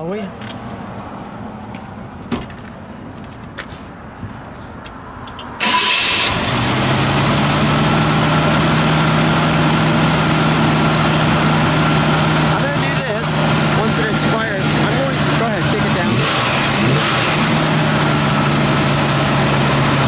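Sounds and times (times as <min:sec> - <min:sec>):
car engine idling: 0:05.6 - 0:20.0.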